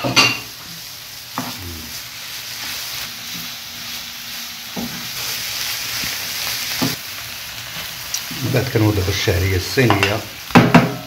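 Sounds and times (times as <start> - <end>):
food sizzling in frying pan: 0.0 - 11.0.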